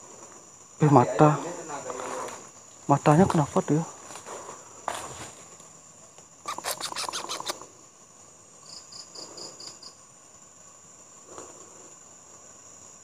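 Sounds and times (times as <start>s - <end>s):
night insects chorus: 0.0s - 13.0s
rustling in dry leaves: 1.6s - 2.6s, 3.3s - 5.8s.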